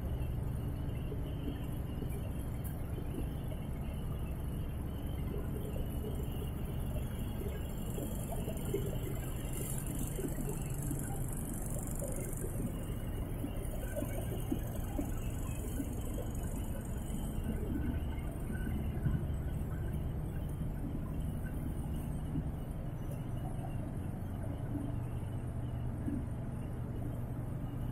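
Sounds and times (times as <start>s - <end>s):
machinery hum with hiss: 0.0s - 27.9s
faint light ticks: 1.4s - 3.3s, 23.0s - 23.8s.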